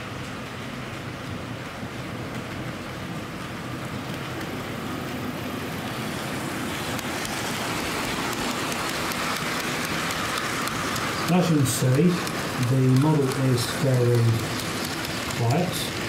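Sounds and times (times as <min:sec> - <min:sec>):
model locomotive motor humming: 0:03.2 - 0:16.0
wheels ringing on rails: 0:06.9 - 0:16.0.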